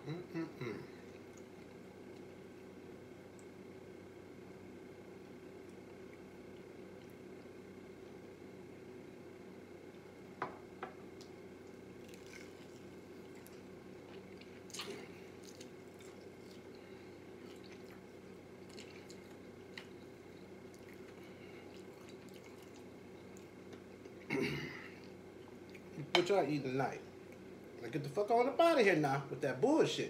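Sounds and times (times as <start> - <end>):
steady low hum: 0.0 - 30.0
chewing: 11.2 - 24.3.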